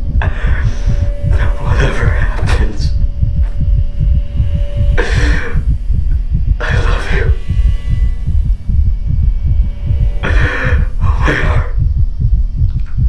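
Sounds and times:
deep pulsing rumble: 0.0s - 13.0s.

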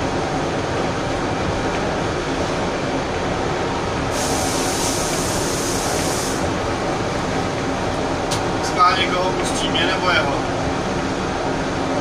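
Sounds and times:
train rumble and rail noise: 0.0s - 12.0s
high hiss: 4.1s - 6.5s.

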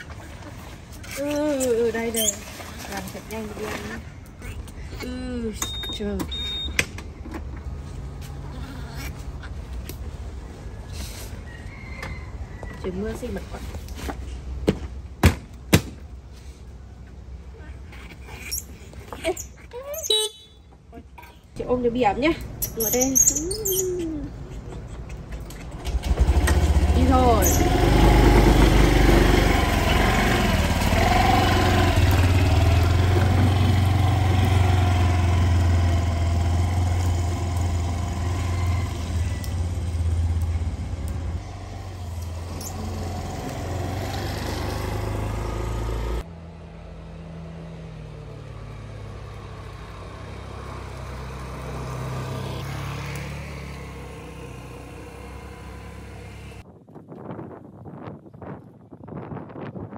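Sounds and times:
motor scooter engine: 25.6s - 56.6s.

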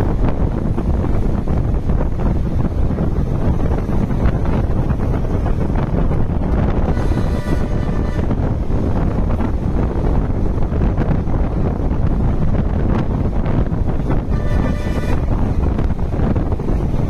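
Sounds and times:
bus engine and road rumble: 0.0s - 17.0s
wind buffeting microphone: 0.0s - 17.0s.

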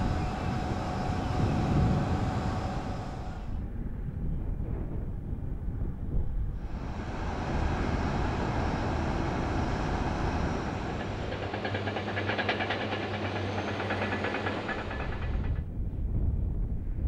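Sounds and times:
industrial machinery rumbling: 0.0s - 17.0s
low hum: 0.0s - 17.0s
fast metallic rattling clatter: 10.2s - 15.7s.

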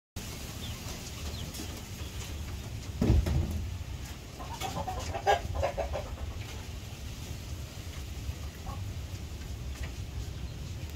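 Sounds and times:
hen clucking: 0.3s - 10.9s.

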